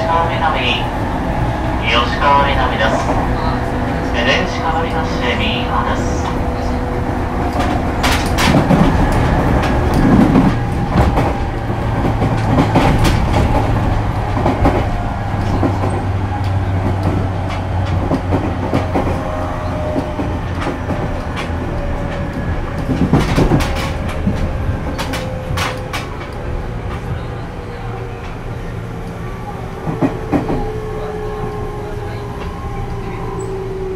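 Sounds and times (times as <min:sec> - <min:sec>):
train drive hum: 0:00.0 - 0:33.9
wheels clacking over rail joints: 0:05.1 - 0:27.2.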